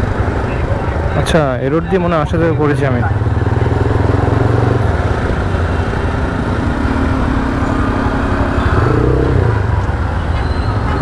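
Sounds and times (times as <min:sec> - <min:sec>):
motorcycle engine running: 0:02.4 - 0:10.3.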